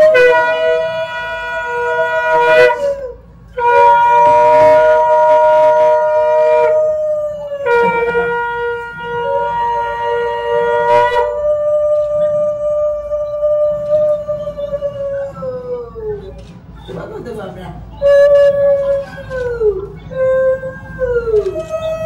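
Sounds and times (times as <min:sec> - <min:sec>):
conch shells blown: 0:00.0 - 0:15.2, 0:18.0 - 0:19.5.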